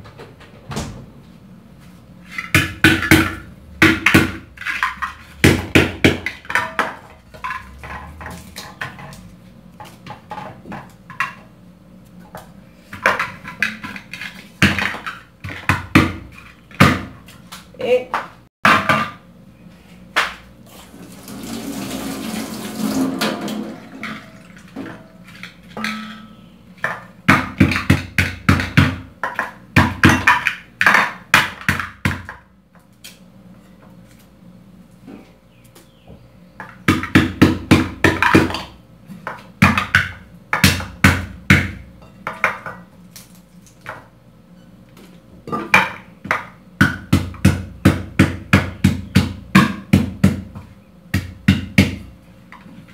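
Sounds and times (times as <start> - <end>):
pestle pounding in a mortar: 2.6 - 8.2, 27.2 - 32.3, 36.8 - 38.7, 45.9 - 52.1.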